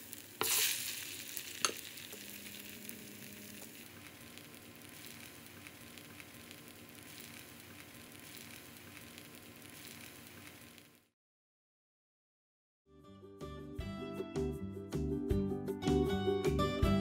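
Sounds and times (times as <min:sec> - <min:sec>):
meat frying in oil crackling: 0:00.0 - 0:11.1.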